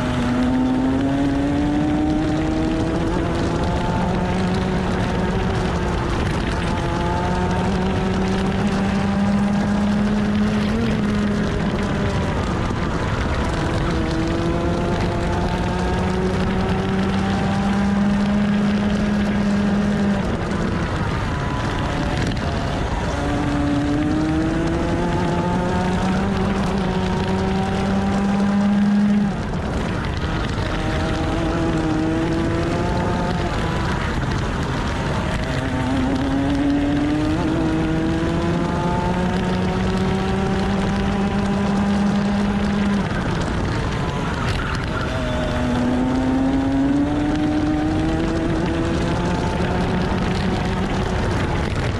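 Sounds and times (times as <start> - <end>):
kart engine accelerating: 0.0 - 51.9
steady rush of noise: 0.0 - 51.9.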